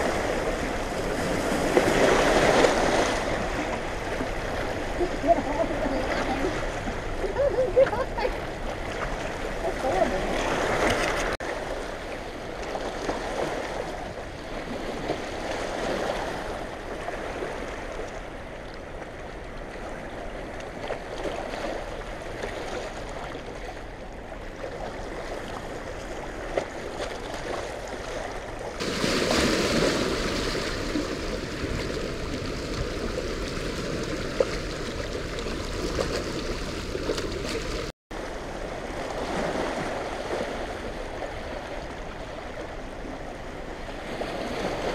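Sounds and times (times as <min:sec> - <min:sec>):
turbulent water rushing: 0:00.0 - 0:18.0, 0:27.8 - 0:44.9.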